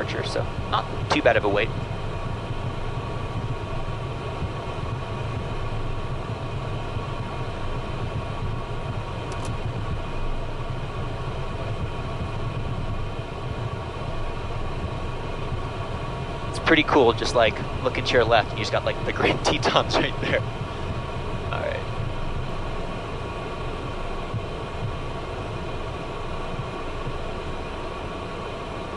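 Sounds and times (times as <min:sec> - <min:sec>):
jet engines idling: 0:00.0 - 0:28.9.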